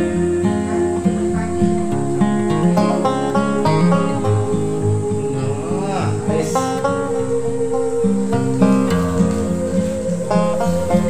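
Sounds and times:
plucked string instrument music: 0.0 - 11.0.

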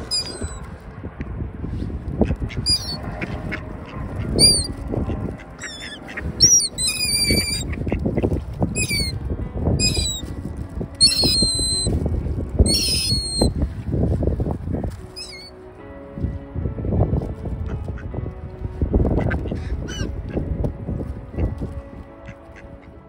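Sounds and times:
gull squealing calls: 0.0 - 0.6, 2.6 - 3.0, 4.4 - 4.8, 5.6 - 7.8, 8.8 - 9.2, 9.8 - 10.2, 11.0 - 11.9, 12.6 - 13.5, 15.2 - 15.5, 19.9 - 20.1
low rustling noise: 7.1 - 22.3.

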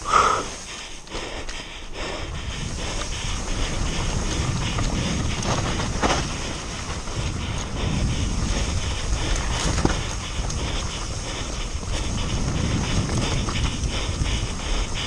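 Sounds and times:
bike tyres on dirt: 0.0 - 15.0
wind buffeting microphone: 0.0 - 15.0
bike chain and frame rattling: 2.4 - 15.0.

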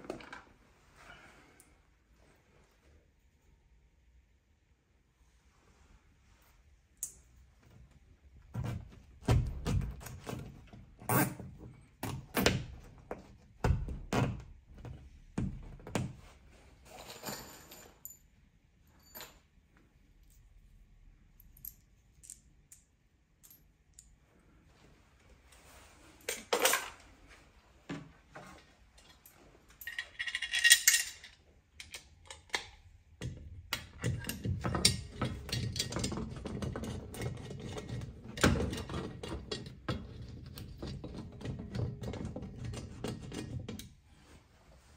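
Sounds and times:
metal fixings clinking: 28.8 - 32.9, 33.7 - 43.9.

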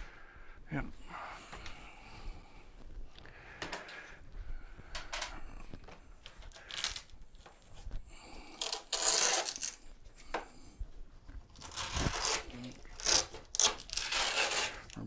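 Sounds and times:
plastic parts rustling and clattering: 6.2 - 7.6, 11.5 - 15.0.

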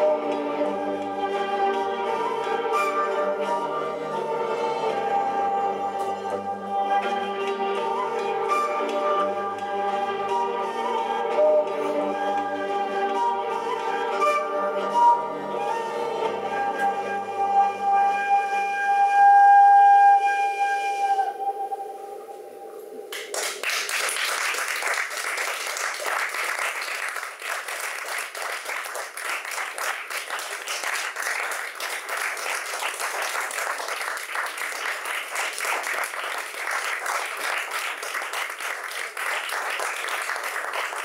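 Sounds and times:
audience applause: 23.1 - 41.0.

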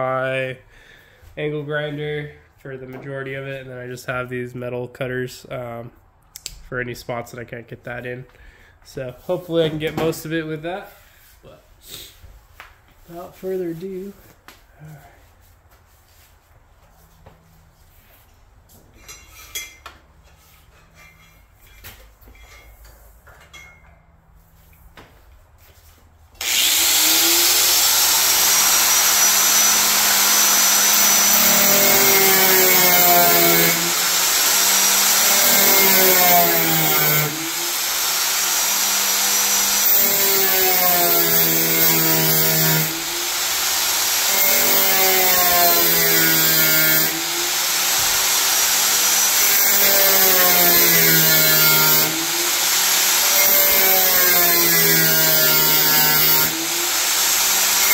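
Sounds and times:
angle grinder cutting metal: 26.4 - 57.9.

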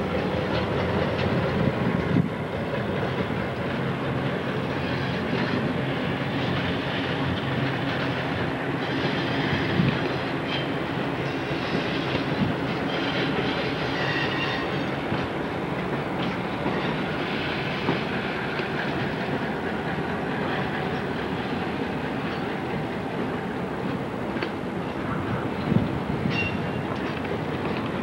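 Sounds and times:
train wheels rumbling on track: 0.0 - 28.0
wheels clicking over rail joints: 0.0 - 28.0
faint wheel squeal: 12.9 - 14.8, 26.3 - 26.8.

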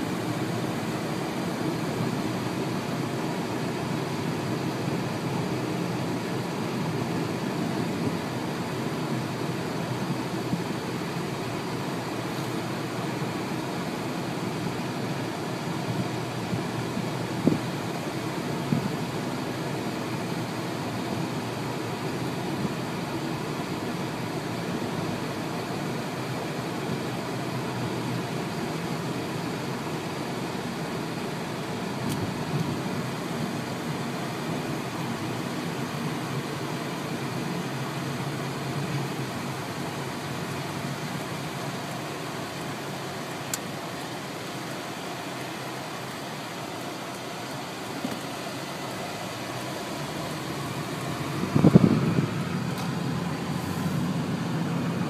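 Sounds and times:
car cabin road and engine noise: 0.0 - 55.0.

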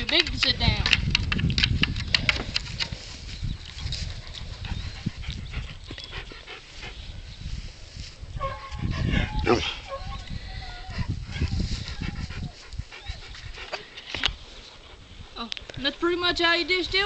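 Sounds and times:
paws clicking on wooden boards: 0.0 - 3.0
wind rumble on microphone: 0.0 - 17.0
dog panting and whimpering: 4.1 - 7.1, 10.8 - 14.0.

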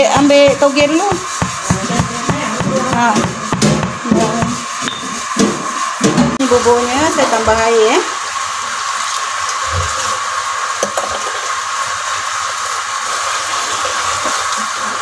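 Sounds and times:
steady rushing hiss: 0.0 - 3.7.

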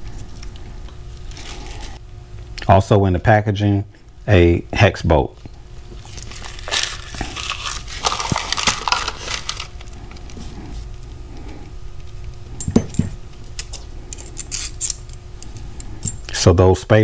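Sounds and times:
plastic packaging crinkling: 5.9 - 10.4.

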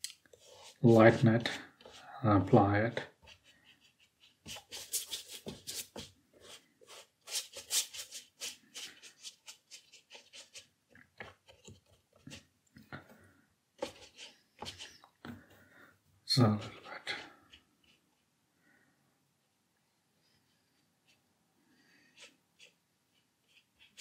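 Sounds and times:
brush working in paint palette: 0.3 - 2.1, 2.9 - 12.5, 13.8 - 15.2, 16.6 - 18.4, 20.5 - 24.0
brush scratching on paper: 0.4 - 2.1, 3.0 - 10.7, 13.8 - 15.0, 16.6 - 18.3, 21.9 - 24.0.

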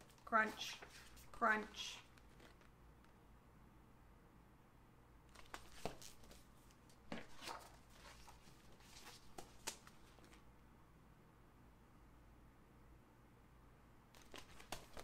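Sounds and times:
book pages rustling and flapping: 0.0 - 1.4, 2.0 - 3.2, 5.3 - 10.5, 14.2 - 15.0.

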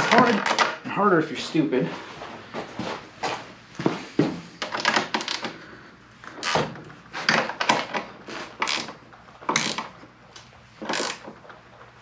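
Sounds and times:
wrench clicking and scraping metal: 8.6 - 9.9, 10.8 - 11.3.

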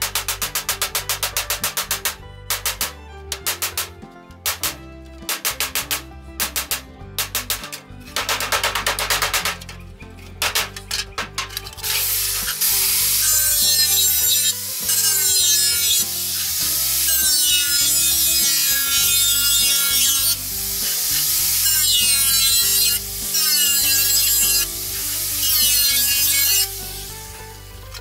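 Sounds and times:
angle grinder cutting metal: 0.0 - 28.0.

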